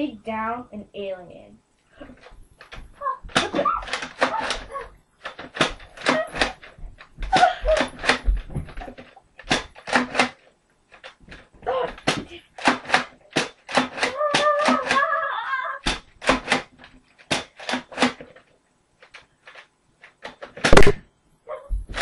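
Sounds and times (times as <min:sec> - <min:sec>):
toy blaster pumped and fired: 0:09.4 - 0:10.4, 0:12.0 - 0:15.1, 0:20.6 - 0:21.0.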